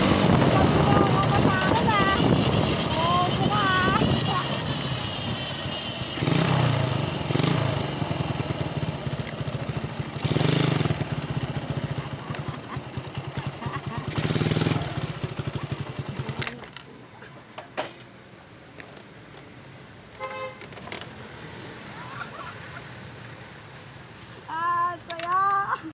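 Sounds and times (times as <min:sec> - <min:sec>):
motorcycle engine running: 0:00.0 - 0:16.9.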